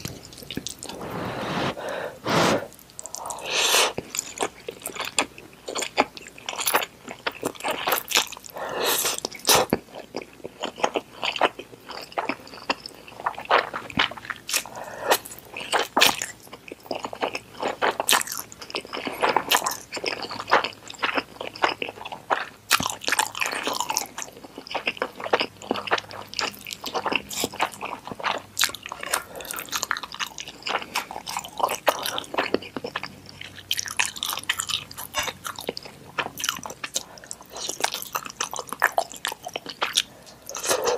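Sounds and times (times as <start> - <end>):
wet chewing: 0.0 - 2.0, 2.7 - 40.9
noodle slurping: 0.8 - 4.0.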